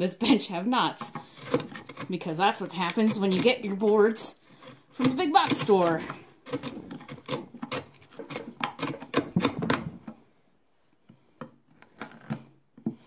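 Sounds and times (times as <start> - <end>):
chisel cracking and clicking wood: 4.6 - 9.9.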